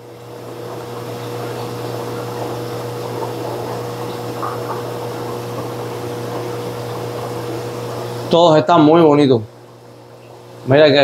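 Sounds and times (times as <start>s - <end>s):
water bubbling and trickling: 0.0s - 8.5s, 9.5s - 10.7s
aquarium pump hum: 0.0s - 11.0s.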